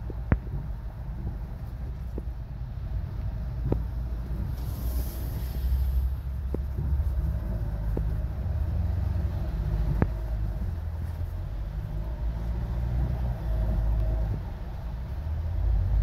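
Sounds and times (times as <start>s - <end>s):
car road rumble on wet street: 0.0s - 16.0s
brief hiss: 4.5s - 6.3s.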